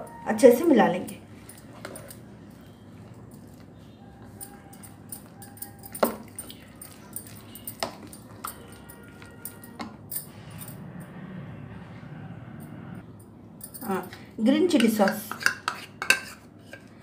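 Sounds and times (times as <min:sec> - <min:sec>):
spoon clinking against bowl: 0:01.0 - 0:10.2, 0:13.7 - 0:17.0
wet stirring in a bowl: 0:01.1 - 0:10.0, 0:14.8 - 0:17.0.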